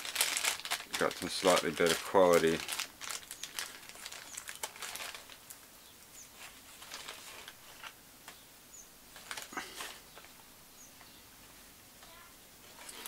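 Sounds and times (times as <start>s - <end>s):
plastic bag crinkling: 0.0s - 5.7s, 6.4s - 7.9s, 9.1s - 10.0s, 12.6s - 13.0s.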